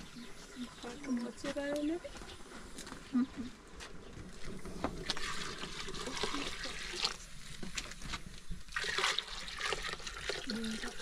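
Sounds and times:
milk pouring into a pot: 5.0 - 8.0, 8.7 - 11.0.

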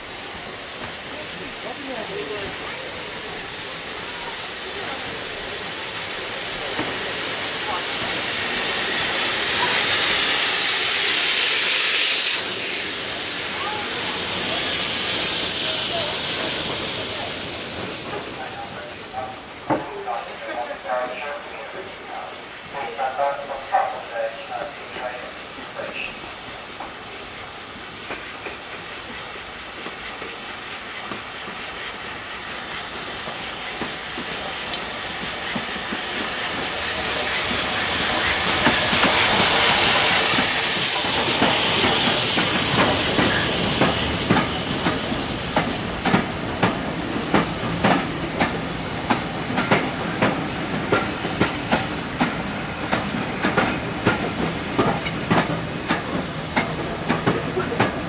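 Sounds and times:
steam locomotive hissing: 0.0 - 58.0
train wheels clickety-clack: 0.2 - 21.2, 26.5 - 58.0.

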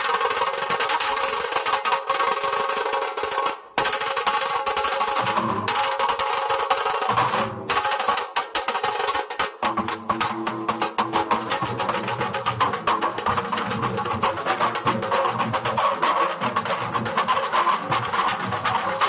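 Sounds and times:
barrel drums beaten with sticks: 2.9 - 19.0.

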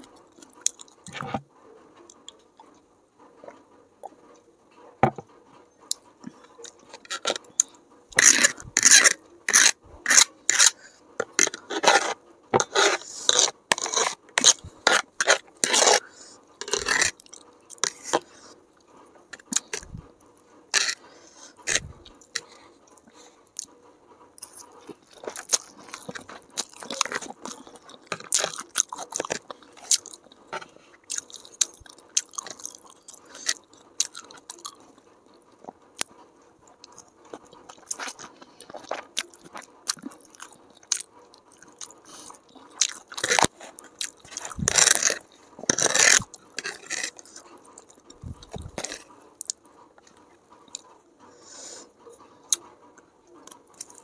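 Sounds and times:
close chewing: 0.0 - 1.4, 5.8 - 23.8, 24.4 - 54.0
fork scraping plastic tray: 0.6 - 1.4, 6.2 - 18.6, 19.3 - 20.1, 20.7 - 22.6, 24.4 - 31.8, 32.4 - 34.5, 41.8 - 49.1.

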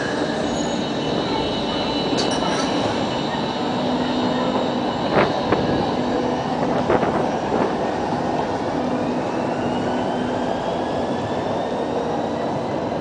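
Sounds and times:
tram motor whine: 0.0 - 13.0
tram rumbling on track: 0.0 - 13.0.

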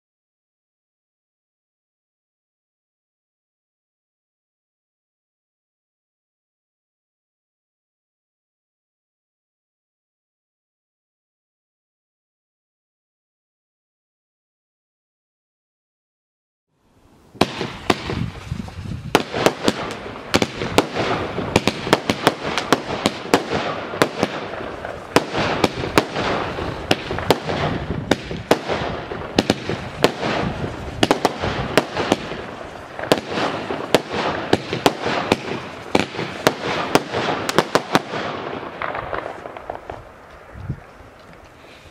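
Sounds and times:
firework hiss: 17.2 - 41.9
firework reports: 17.3 - 41.9.

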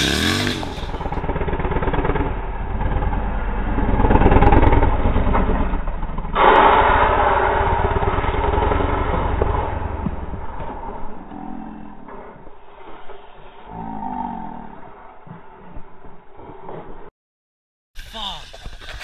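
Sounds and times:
motorcycle engine revving hard: 0.0 - 11.6.

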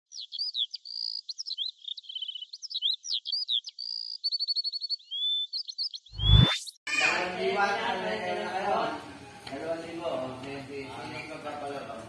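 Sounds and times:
birds chirping and whistling: 0.1 - 6.8.

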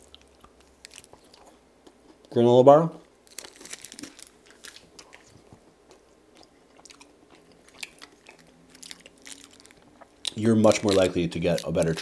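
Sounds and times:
person chewing crunchy bar: 0.0 - 2.3, 3.3 - 12.0.

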